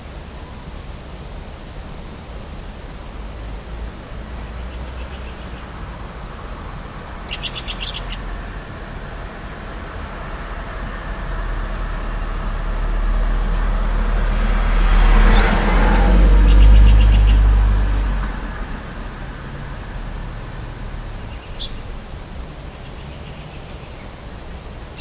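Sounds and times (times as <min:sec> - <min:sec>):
car passing with tyre noise: 0:00.1 - 0:25.0.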